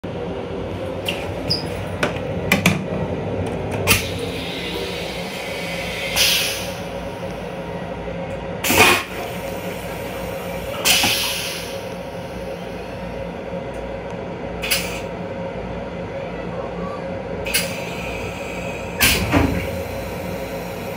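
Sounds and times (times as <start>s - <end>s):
train running hum: 0.0s - 20.9s
toilet flushing hiss: 3.9s - 6.8s.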